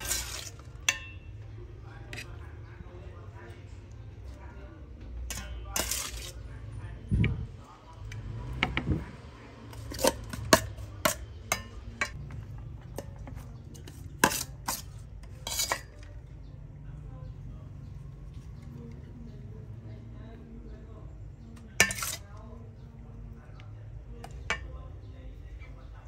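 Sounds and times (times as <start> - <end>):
utensils clinking on metal bowl: 0.0 - 1.4, 5.3 - 6.4, 9.7 - 16.3, 21.6 - 22.4, 24.2 - 24.8.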